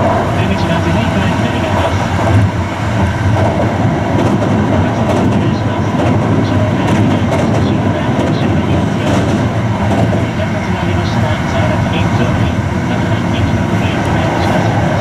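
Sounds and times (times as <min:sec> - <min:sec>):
track clacks: 0:00.0 - 0:15.0
train wheels rumbling on rail: 0:00.0 - 0:15.0.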